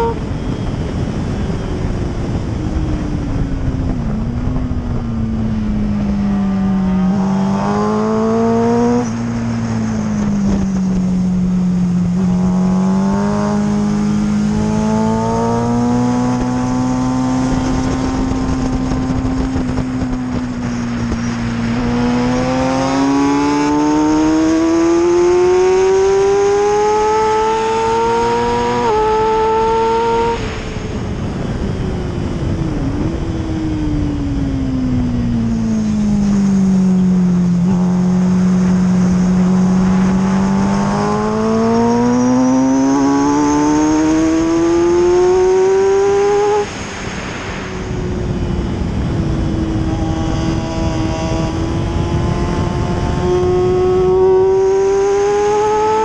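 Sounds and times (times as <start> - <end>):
motorcycle engine revving: 0.0 - 56.0
wind rush: 0.0 - 56.0.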